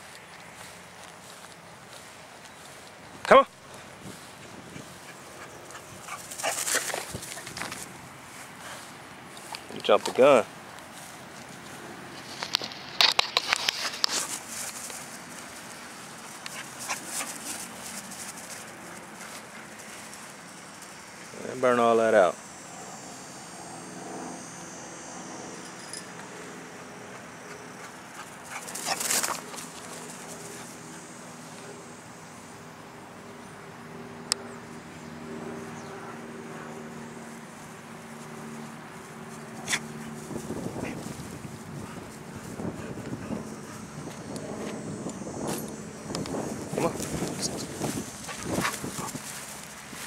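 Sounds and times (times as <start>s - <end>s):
distant engine hum: 0.0s - 50.0s
dog feet thudding on grass: 10.8s - 20.4s, 46.5s - 50.0s.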